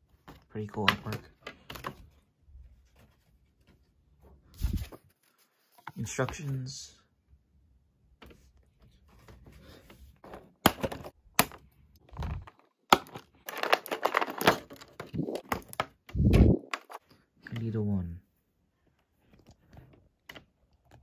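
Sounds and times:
plastic tray crinkling and crackling: 12.0s - 16.0s.

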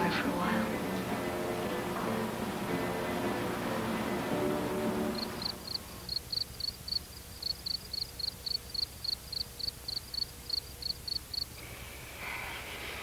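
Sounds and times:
cricket chirping: 5.1s - 11.6s.

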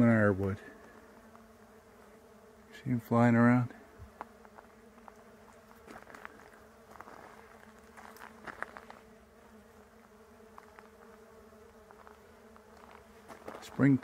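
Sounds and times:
bees humming: 0.0s - 14.0s.

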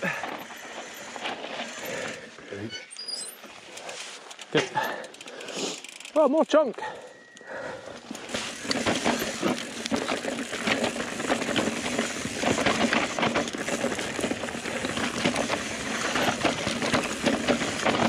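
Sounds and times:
bike tyres rolling over rocks: 0.0s - 2.5s, 7.8s - 18.0s
bike knocking and rattling: 0.0s - 6.6s, 7.6s - 18.0s.

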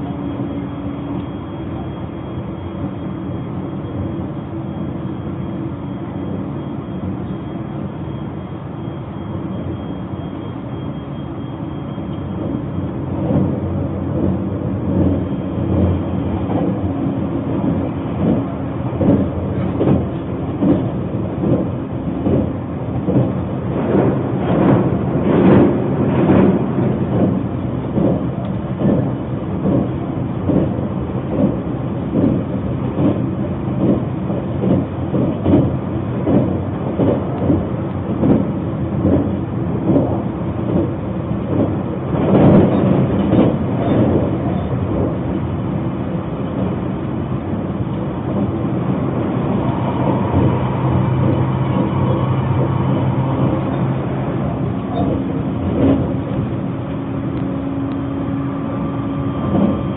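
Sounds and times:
train wheels rumbling on rail: 0.0s - 59.9s
track knocks: 13.2s - 31.6s, 33.8s - 45.2s, 47.4s - 59.9s.

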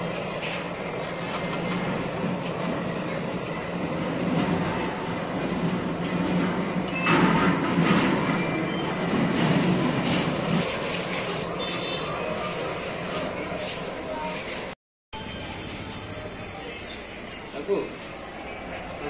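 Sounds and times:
faint high squeaks: 11.0s - 14.6s.

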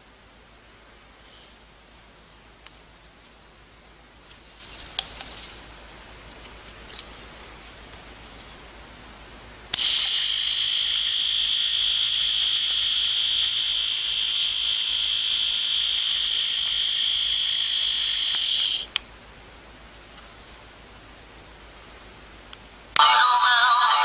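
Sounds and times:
motor whirring high-pitched: 9.8s - 19.0s.

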